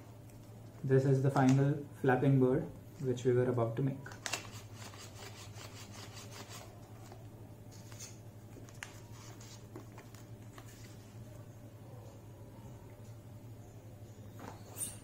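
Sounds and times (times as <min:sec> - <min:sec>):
paper rustling and crinkling: 0:07.8 - 0:11.3.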